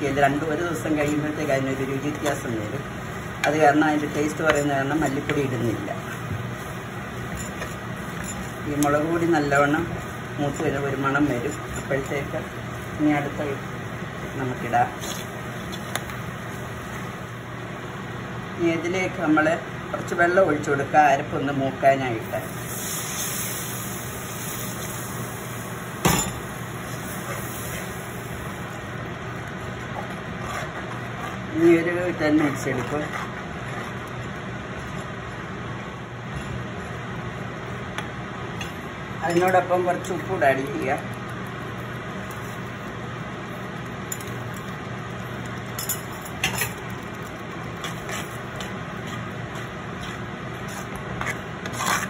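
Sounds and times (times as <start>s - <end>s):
steel spoon stirring paste: 0.0s - 13.5s, 28.7s - 35.5s, 43.7s - 52.0s
steady background hiss: 0.0s - 29.9s.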